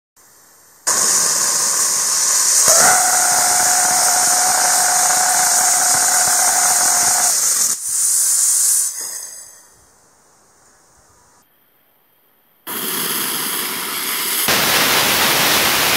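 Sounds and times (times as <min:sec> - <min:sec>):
rocket engine hiss: 0:00.2 - 0:09.8, 0:12.7 - 0:15.9
steady high tone: 0:00.9 - 0:07.8.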